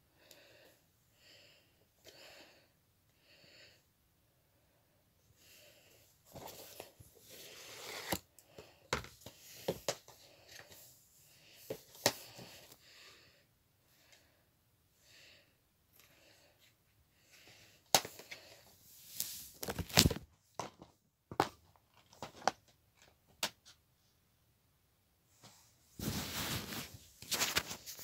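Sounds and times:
soft breathing: 0:00.1 - 0:19.3
plastic cases rustling and clicking: 0:19.5 - 0:23.7.

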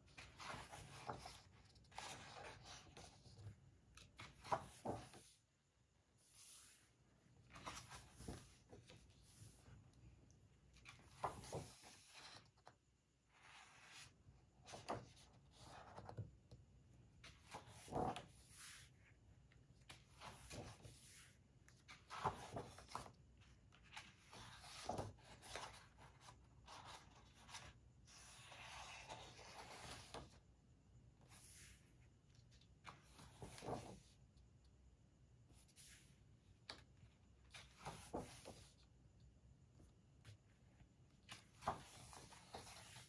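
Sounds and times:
magazine pages turning: 0:21.8 - 0:23.2.

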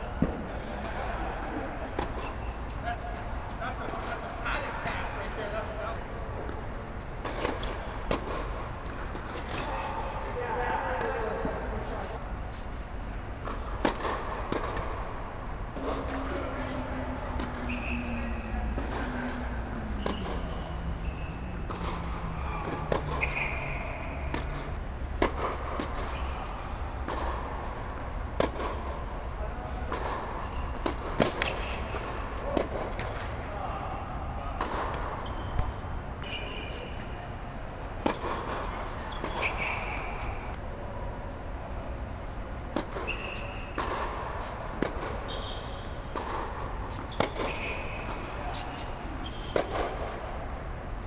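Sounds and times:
rackets hitting tennis ball: 0:00.0 - 0:40.7, 0:42.5 - 0:50.6
steady low hum: 0:00.0 - 0:51.0
tennis ball bouncing on court: 0:06.4 - 0:09.7, 0:13.4 - 0:16.2, 0:18.6 - 0:26.3, 0:27.0 - 0:29.0, 0:29.9 - 0:33.4, 0:38.0 - 0:40.6, 0:42.7 - 0:50.2
tennis ball struck by racket: 0:20.0 - 0:22.0, 0:22.6 - 0:26.3, 0:46.1 - 0:50.2.

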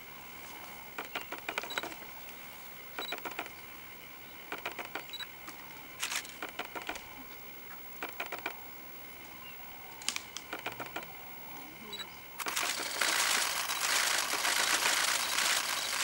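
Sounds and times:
steady high insect drone: 0:00.0 - 0:16.0
rapid clicks and rattles: 0:01.0 - 0:02.0, 0:03.0 - 0:03.5, 0:04.5 - 0:05.1, 0:06.0 - 0:07.0, 0:08.0 - 0:08.6, 0:10.1 - 0:11.1, 0:12.4 - 0:16.0.

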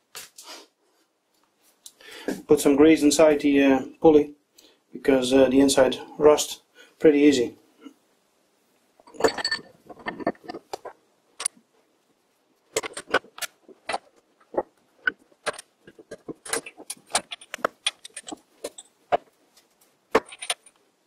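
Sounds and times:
metal clinks: 0:09.1 - 0:10.6.

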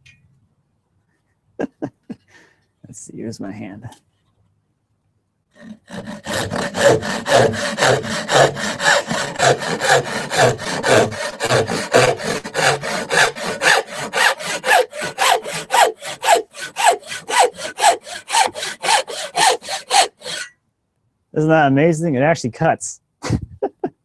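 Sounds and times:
handsaw cutting plywood: 0:05.6 - 0:20.5.

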